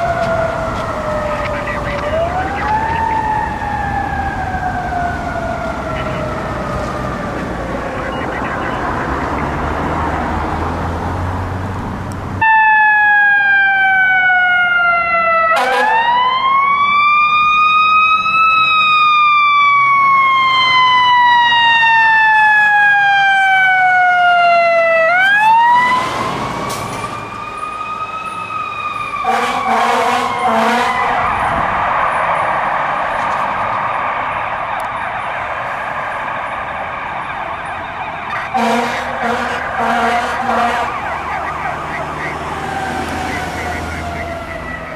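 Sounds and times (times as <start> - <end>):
fire truck siren wailing: 0.0 - 44.9
traffic noise: 0.0 - 44.9
truck engine: 0.0 - 44.9
air horn blasts: 15.5 - 16.1, 29.2 - 31.2, 38.5 - 41.0.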